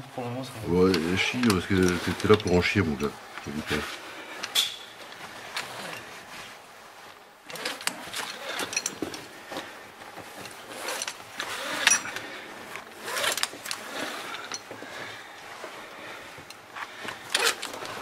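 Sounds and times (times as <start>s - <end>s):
rope and harness scraping and rustling: 0.2s - 18.0s
metal clicks of ascender on rope: 0.8s - 3.8s, 4.4s - 6.0s, 7.5s - 9.3s, 10.4s - 12.2s, 16.4s - 18.0s.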